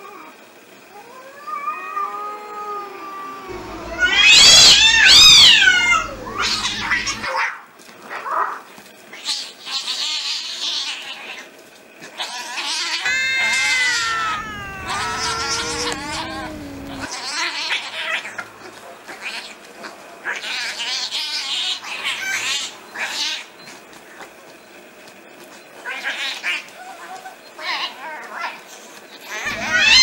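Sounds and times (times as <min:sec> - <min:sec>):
cat yowling: 0:00.9 - 0:07.3, 0:12.2 - 0:18.4, 0:29.2 - 0:30.0
cats hissing and spitting: 0:02.4 - 0:07.3, 0:09.2 - 0:23.4, 0:28.7 - 0:30.0.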